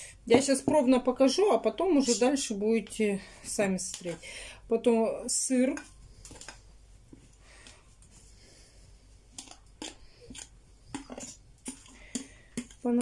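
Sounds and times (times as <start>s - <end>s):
fork scraping a plate: 9.4s - 12.8s.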